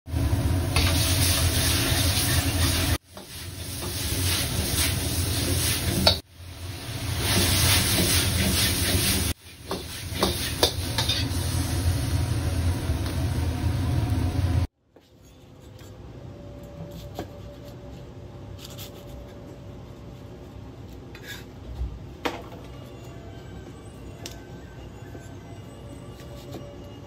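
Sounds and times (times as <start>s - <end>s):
food sizzling in a hot pan: 0.3s - 14.7s
sharp scrapes or knocks: 7.3s - 11.3s
low rumble: 11.3s - 14.7s.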